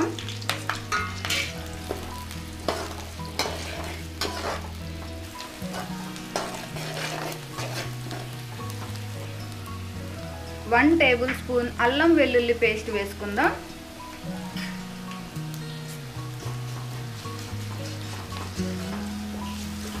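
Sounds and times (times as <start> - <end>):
spatula scraping and tapping pan: 0.0 - 4.8, 5.7 - 9.0
onions sizzling in hot oil: 0.0 - 20.0.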